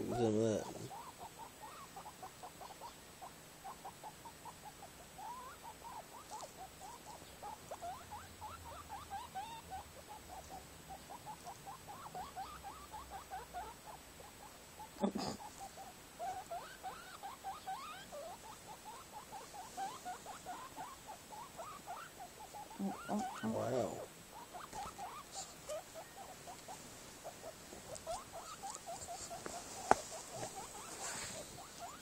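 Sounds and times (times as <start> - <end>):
guinea pig squeaking: 0.0 - 32.0.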